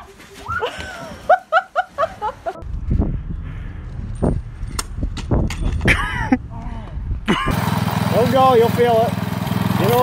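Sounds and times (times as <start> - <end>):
low rumbling noise: 2.6 - 7.6.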